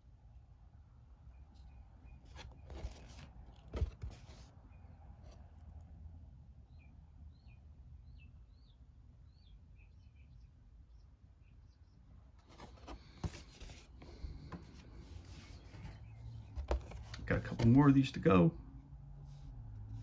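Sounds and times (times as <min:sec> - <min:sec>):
cardboard rustling and sliding: 0:02.2 - 0:04.5, 0:12.4 - 0:17.8.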